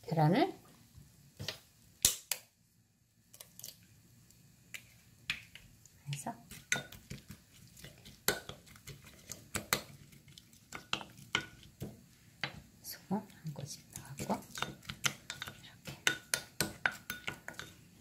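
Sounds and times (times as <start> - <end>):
egg cracking against bowl: 2.0 - 2.5
wooden spoon tapping bowl: 14.0 - 17.7.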